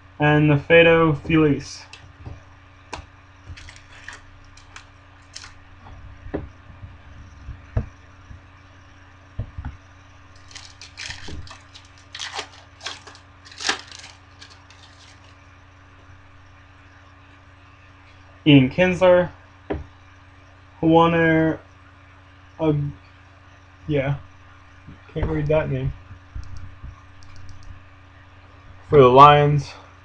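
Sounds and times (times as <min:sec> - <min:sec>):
foil wrapper crinkling: 0:03.5 - 0:05.6, 0:10.4 - 0:15.4.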